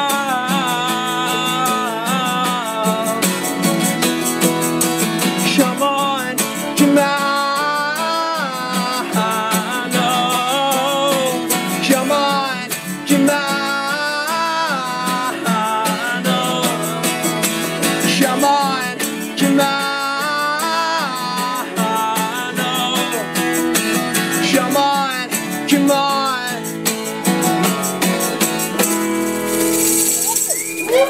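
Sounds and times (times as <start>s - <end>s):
acoustic guitar strumming: 0.0s - 31.0s
wordless singing: 5.4s - 26.8s
crowd cheering: 30.1s - 31.0s.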